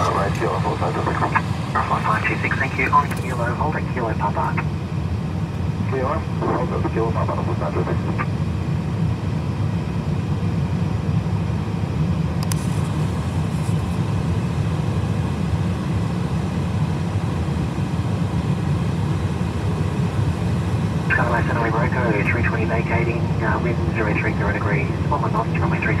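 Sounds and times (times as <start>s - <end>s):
jet engines idling: 0.0s - 26.0s
brief click: 12.4s - 12.7s.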